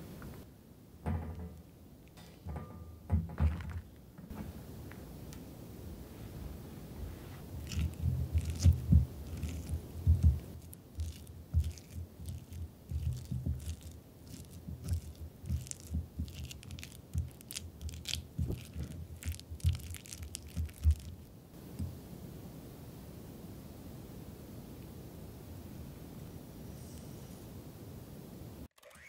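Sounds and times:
spatula mashing squash: 0:07.4 - 0:21.3.

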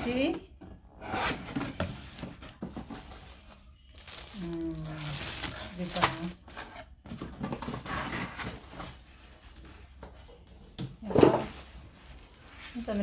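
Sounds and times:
cardboard rustling and scraping: 0:05.0 - 0:10.0.

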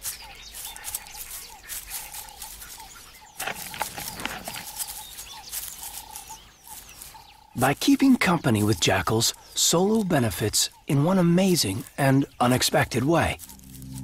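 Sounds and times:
jackal pups squeaking and whining: 0:01.6 - 0:07.6.

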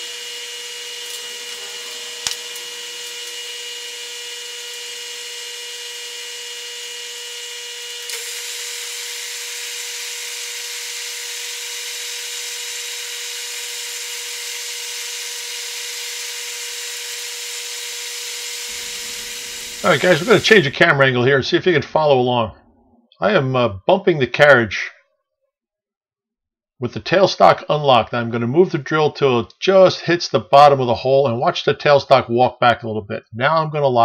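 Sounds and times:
metal lathe whining: 0:00.0 - 0:06.4, 0:15.6 - 0:22.6
drilling hiss: 0:00.0 - 0:07.0, 0:07.9 - 0:22.6.

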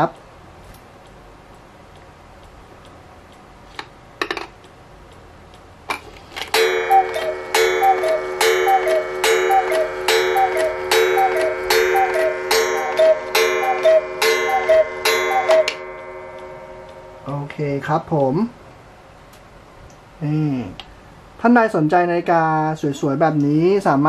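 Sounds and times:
clock hand clicking: 0:00.0 - 0:05.8, 0:06.5 - 0:18.4
cuckoo clock call: 0:06.5 - 0:17.5.

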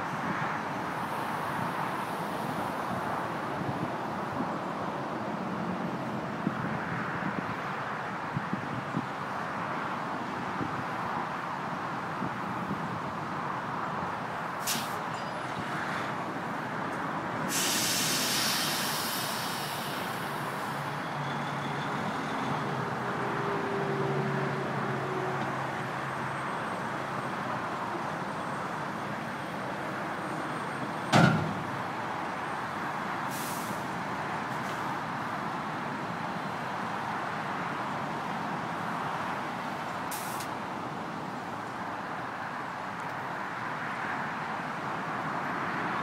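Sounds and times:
crane diesel engines running: 0:00.0 - 0:43.4
long hiss: 0:17.5 - 0:20.8, 0:40.1 - 0:40.5.

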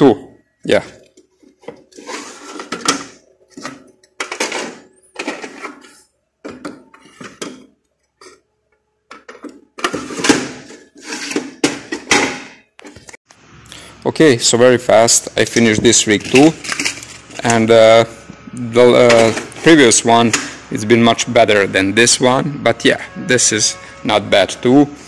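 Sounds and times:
metal card cage scraping and rustling: 0:01.5 - 0:06.1, 0:09.8 - 0:12.2, 0:15.7 - 0:17.6.

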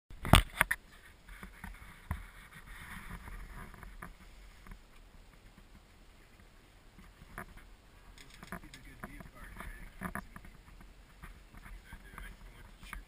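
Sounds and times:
gondola cabin rumble: 0:07.2 - 0:13.0
knocks and rattles: 0:08.2 - 0:13.0.

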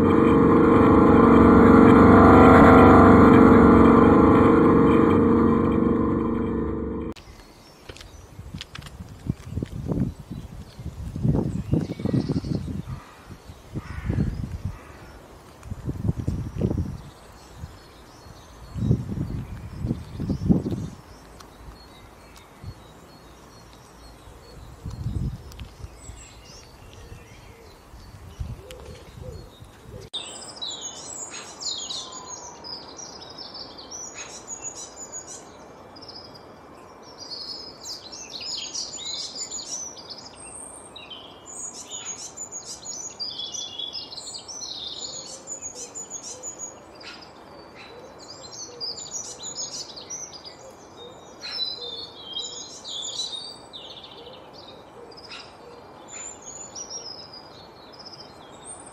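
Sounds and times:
low thumps: 0:00.0 - 0:07.2.

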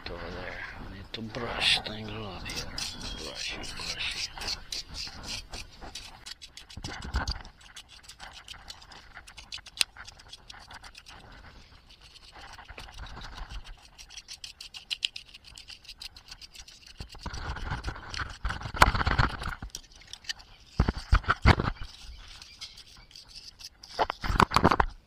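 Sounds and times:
brush scrubbing circuit board: 0:01.8 - 0:18.7.

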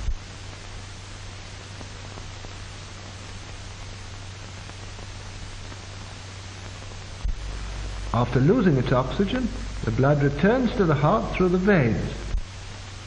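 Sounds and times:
film soundtrack hiss and hum: 0:00.0 - 0:13.0.

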